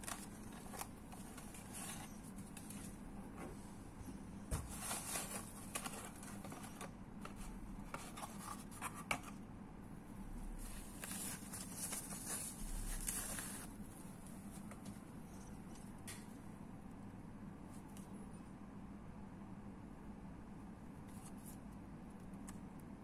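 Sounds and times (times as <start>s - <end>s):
cardboard and foam rustling: 0.0s - 3.6s, 4.4s - 9.4s, 10.5s - 13.8s.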